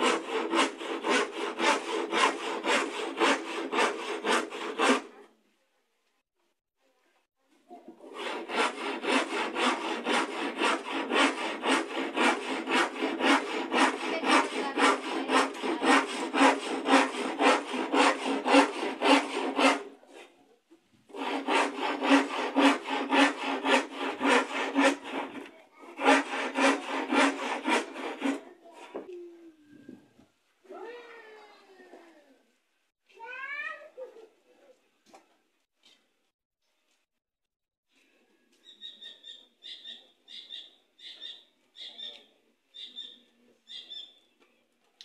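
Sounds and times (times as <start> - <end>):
hand saw cutting wood: 0.0 - 5.3, 8.0 - 20.4, 21.1 - 29.1.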